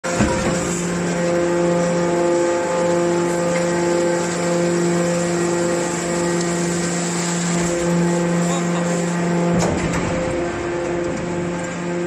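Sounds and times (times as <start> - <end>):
hydraulic baler humming: 0.0 - 12.0
baler clunk: 9.4 - 11.8.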